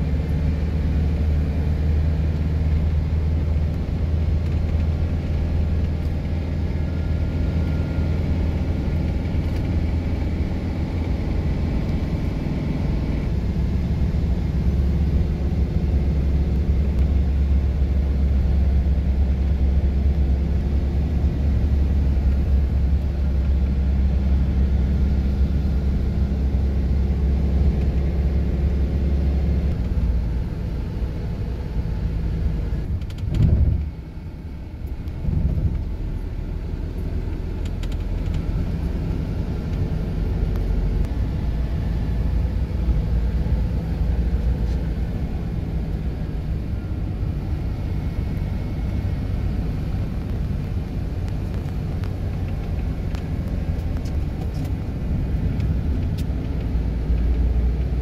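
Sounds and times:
car engine and tyres rumbling: 0.0s - 58.0s.

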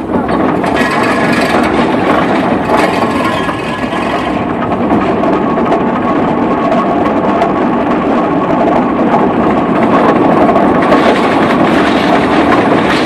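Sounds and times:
steam traction engine clatter: 0.0s - 13.0s.

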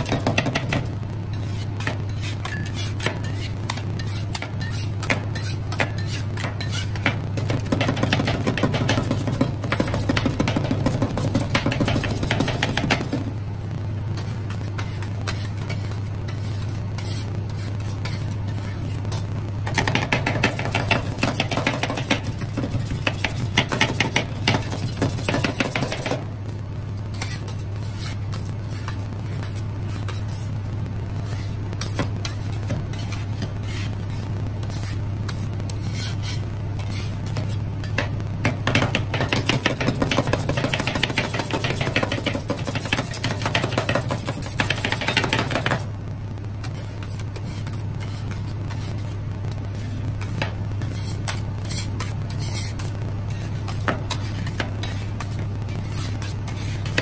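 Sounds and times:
metal spatulas scraping on metal plate: 0.0s - 13.2s, 27.1s - 30.5s, 49.8s - 57.0s
refrigeration unit humming: 0.0s - 57.0s.

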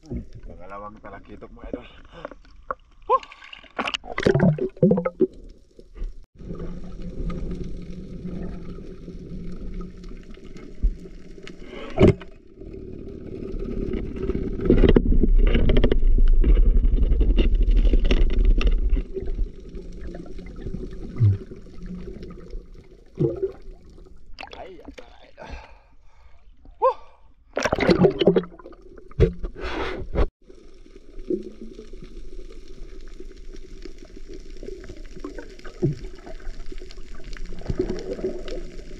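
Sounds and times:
underwater low hum: 4.0s - 25.0s, 30.4s - 38.9s.

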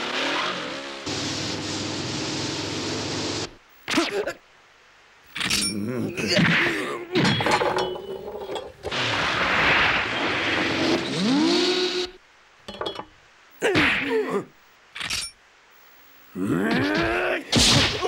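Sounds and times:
motorcycle engine revving: 0.0s - 3.3s
knife clattering on wooden floor: 7.2s - 8.8s, 12.7s - 13.1s.

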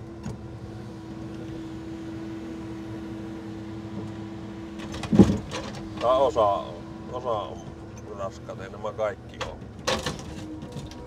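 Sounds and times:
truck engine and hydraulics hum: 0.0s - 11.0s
heavy thump of load set down: 4.9s - 5.8s.

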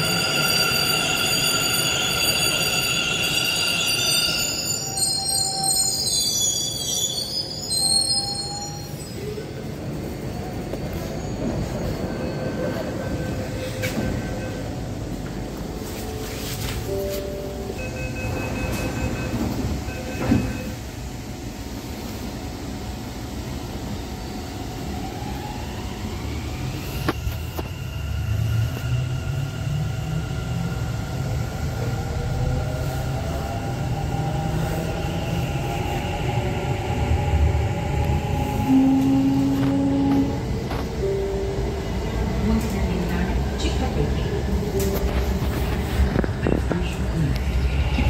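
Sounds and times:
two-tone beeping: 16.9s - 20.8s.

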